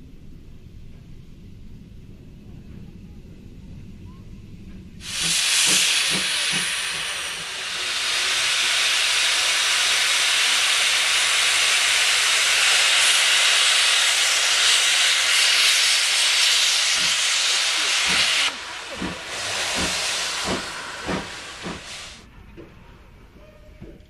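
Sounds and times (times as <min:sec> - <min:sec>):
soft locomotive chuffs: 0:00.1 - 0:24.0
loud steam hiss: 0:05.0 - 0:22.3.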